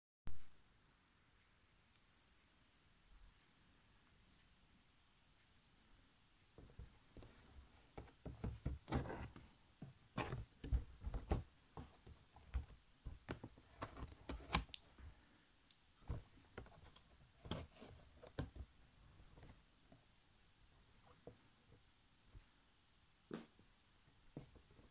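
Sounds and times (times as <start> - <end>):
handling clicks taps and rustles: 6.6 - 15.1.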